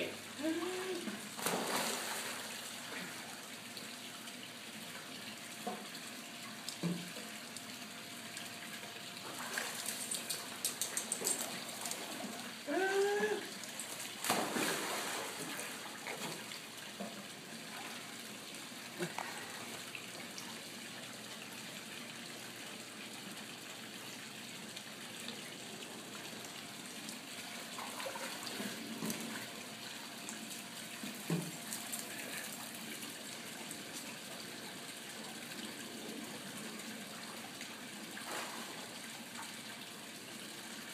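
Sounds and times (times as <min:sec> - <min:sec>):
pool water splashing and lapping: 0:00.0 - 0:40.9
running water: 0:00.0 - 0:40.9
loud short splashes: 0:01.4 - 0:02.4, 0:14.2 - 0:15.4.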